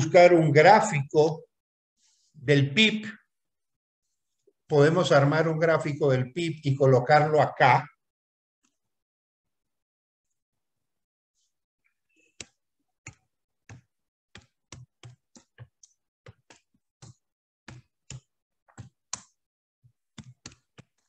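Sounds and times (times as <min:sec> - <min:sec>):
computer keyboard typing: 0:12.4 - 0:19.4, 0:20.2 - 0:21.0.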